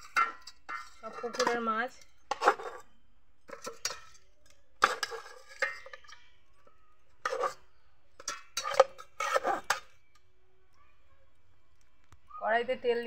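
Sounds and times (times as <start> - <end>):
metal spatula clanking on pots: 0.0 - 10.2.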